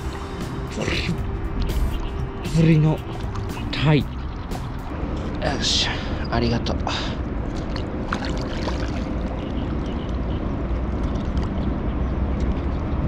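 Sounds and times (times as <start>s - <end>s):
steady low rumble: 0.0s - 13.0s
water lapping against rocks: 3.0s - 5.4s, 7.2s - 11.7s.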